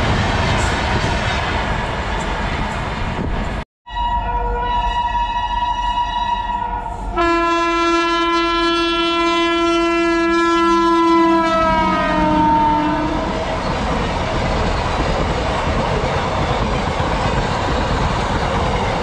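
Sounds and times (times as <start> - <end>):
moving train rumble and clatter: 0.0 - 3.6, 4.7 - 19.0
train horn blast: 3.9 - 13.5.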